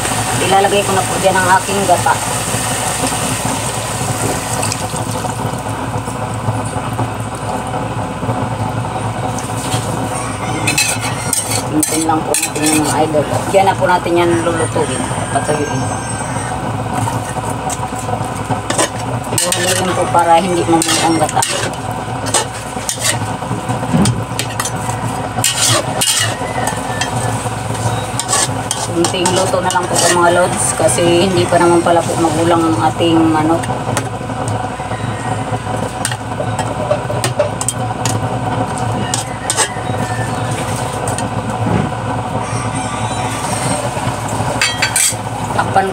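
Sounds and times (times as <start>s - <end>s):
food simmering and sizzling: 0.0s - 14.2s, 15.9s - 45.8s
steady low hum: 0.0s - 45.9s
metal spatula scraping a wok: 9.6s - 13.4s, 18.7s - 23.3s, 24.3s - 32.2s, 39.0s - 41.2s, 44.6s - 45.2s.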